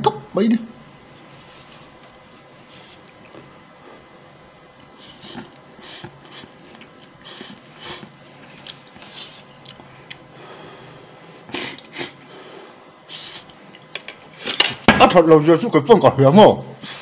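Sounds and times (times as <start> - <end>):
person slurping noodles: 5.0 - 6.6.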